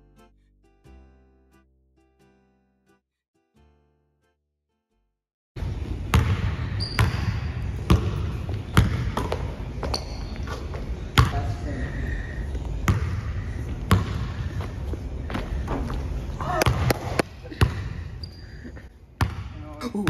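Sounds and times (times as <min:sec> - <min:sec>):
basketball bouncing on hardwood floor: 0:06.1 - 0:10.3, 0:12.9 - 0:13.2, 0:13.9 - 0:16.0, 0:16.6 - 0:17.9, 0:19.2 - 0:19.6.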